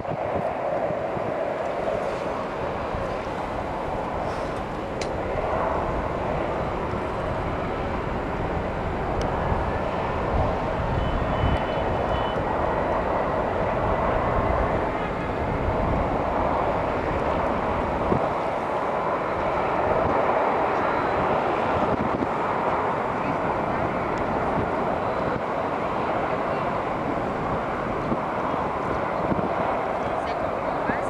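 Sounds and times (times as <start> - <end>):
distant jet engine: 0.0 - 31.0
wind on microphone: 0.0 - 31.0
faint high whine: 1.6 - 13.6.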